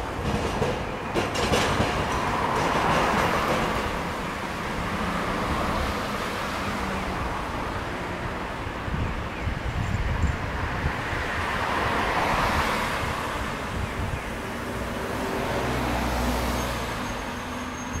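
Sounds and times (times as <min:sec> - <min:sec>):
low rumble of traffic: 0:00.0 - 0:18.0
wind buffeting microphone: 0:07.1 - 0:16.1
car passing close by: 0:14.6 - 0:17.1.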